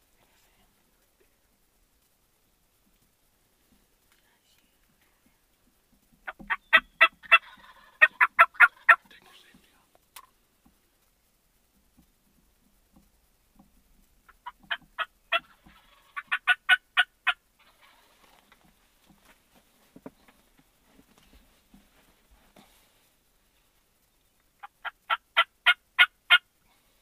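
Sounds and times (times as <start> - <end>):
turkey yelping: 6.2 - 9.1, 14.3 - 18.2, 24.6 - 26.5.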